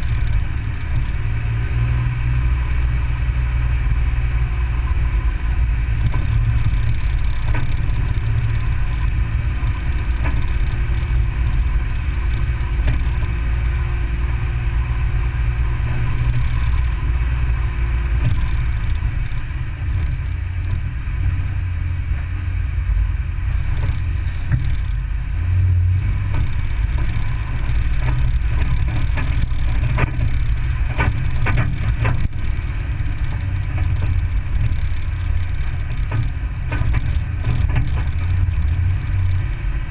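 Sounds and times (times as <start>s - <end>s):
sharp rattles: 0.0s - 2.0s, 5.9s - 14.5s, 15.8s - 21.0s, 23.5s - 25.2s, 25.9s - 39.9s
engine and road rumble: 0.0s - 39.9s.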